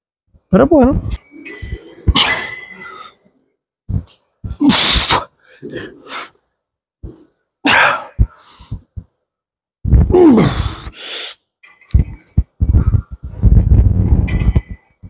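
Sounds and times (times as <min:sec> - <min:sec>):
man groaning: 0:10.0 - 0:10.8.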